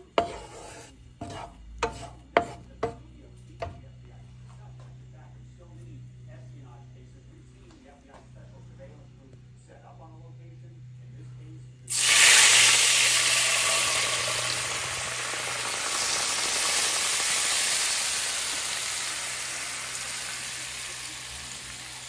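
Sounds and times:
broth sizzling in a skillet: 0.0 - 3.0, 11.9 - 22.0.

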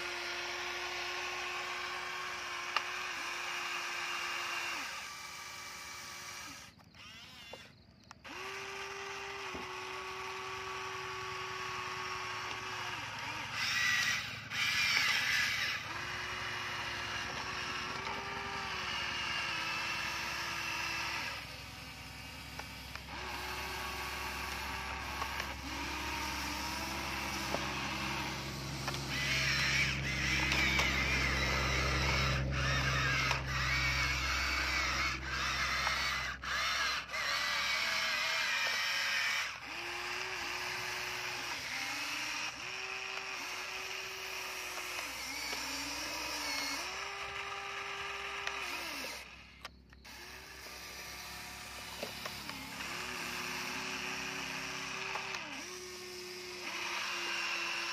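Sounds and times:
small electric motors whirring: 0.0 - 57.9
low hum: 12.5 - 37.2.

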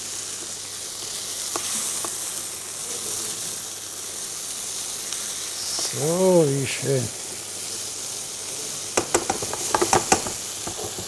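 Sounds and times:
food sizzling in a frying pan: 0.0 - 11.0
spatula clicking against pan: 9.0 - 11.0.

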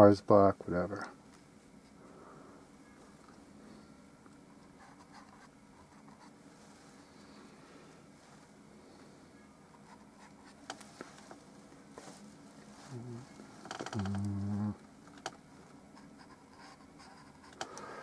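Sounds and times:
low buzzing tone: 6.8 - 15.6.

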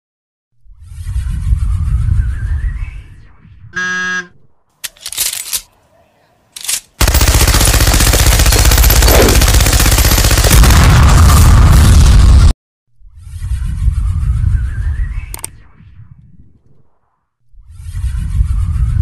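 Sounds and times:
deep rumble: 0.6 - 3.7, 10.5 - 19.0
pitched buzzing tone: 3.8 - 4.4
machine-gun fire: 7.0 - 12.5.

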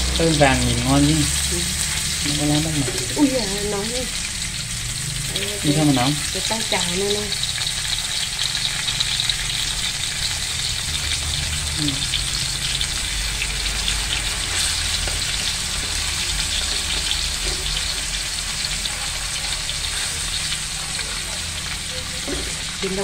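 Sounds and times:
meat sizzling in hot oil: 0.0 - 23.0.

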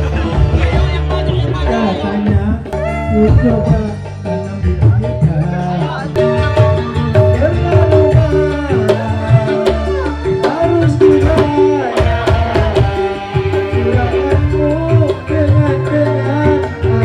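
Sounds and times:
hand drums beating: 0.0 - 17.0
keyboard: 0.0 - 17.0
strong bass: 0.0 - 17.0.

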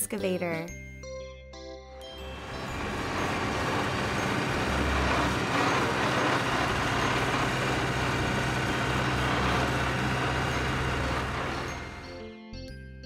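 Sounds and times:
excavator diesel engine running: 2.2 - 12.2.

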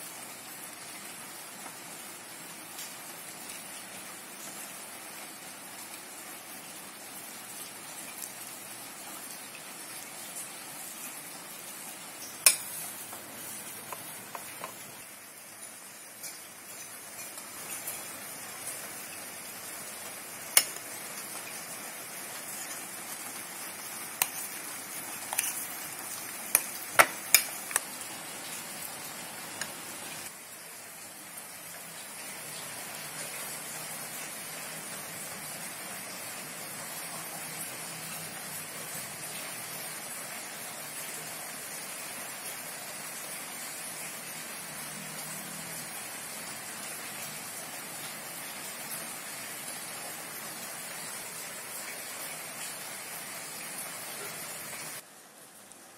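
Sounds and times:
soft steady hiss: 0.0 - 55.9
wet mixing sounds: 23.2 - 27.9.

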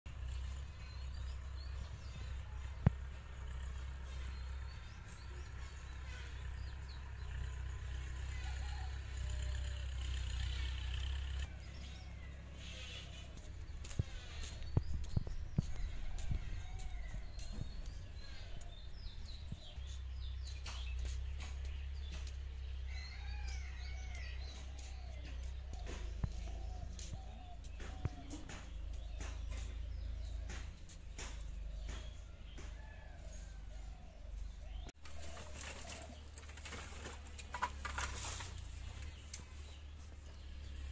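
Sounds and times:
birds chirping: 0.1 - 40.9
steady low rumble: 11.7 - 20.6
flip-flop footsteps on dirt: 11.9 - 33.6.

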